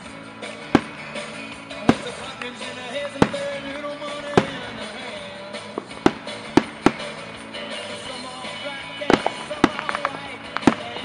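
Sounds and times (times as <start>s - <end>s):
music from a radio: 0.0s - 11.0s
firework shells bursting: 0.5s - 11.0s.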